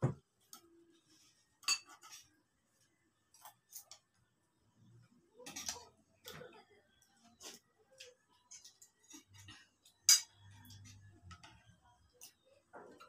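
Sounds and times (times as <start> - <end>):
spoons clinking on plates: 1.6 - 2.3, 8.5 - 11.6.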